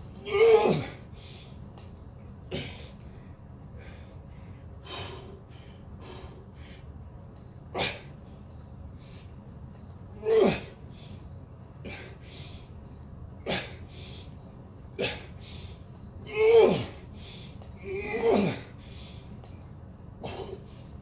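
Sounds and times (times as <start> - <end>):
man grunting: 0.2 - 1.0, 10.2 - 10.8, 16.3 - 17.0, 17.8 - 18.7
man breathing forcefully: 2.6 - 6.9, 18.5 - 19.4.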